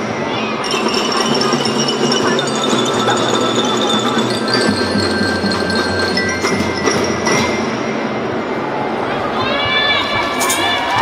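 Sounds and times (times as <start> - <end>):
children's drum band playing: 0.0 - 8.1.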